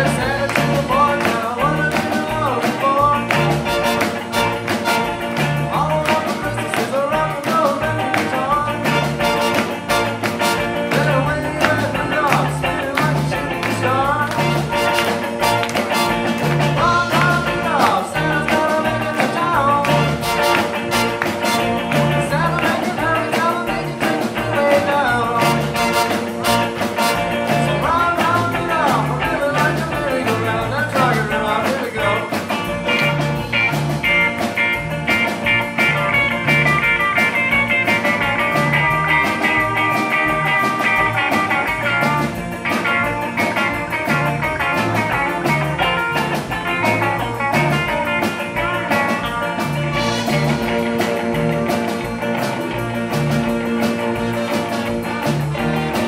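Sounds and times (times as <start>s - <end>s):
drums: 0.0s - 56.0s
electric guitar bending notes: 0.0s - 56.0s
upright bass walking line: 0.0s - 56.0s
horn section long notes: 20.1s - 21.8s, 25.4s - 27.5s.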